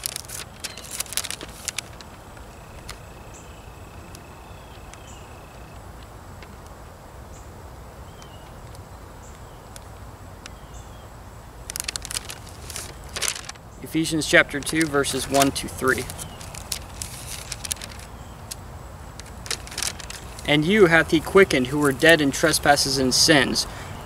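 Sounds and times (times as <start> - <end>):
pages flipping: 0.0 - 3.0, 11.7 - 13.6, 14.2 - 18.6, 19.2 - 20.5.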